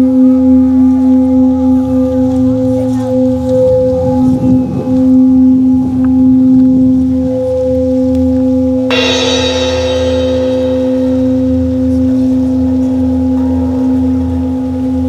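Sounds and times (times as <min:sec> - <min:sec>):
steady low drone: 0:00.0 - 0:15.0
cymbal struck with mallet: 0:08.9 - 0:14.1.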